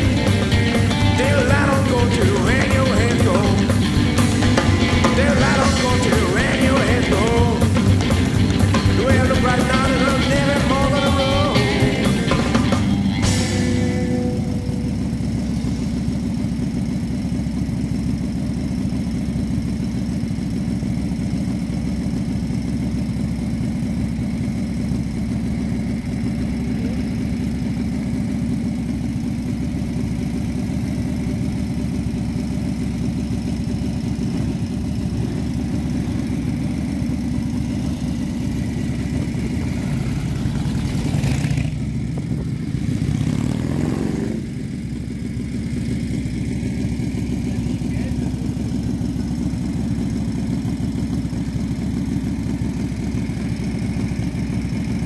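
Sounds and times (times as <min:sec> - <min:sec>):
rock song with singing: 0:00.0 - 0:15.2
motorcycle engine idling: 0:00.0 - 0:55.0.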